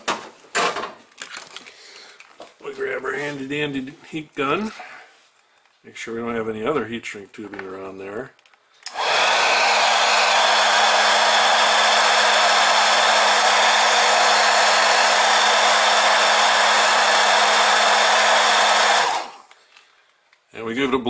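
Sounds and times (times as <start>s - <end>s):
heat gun blowing air: 8.8s - 19.6s.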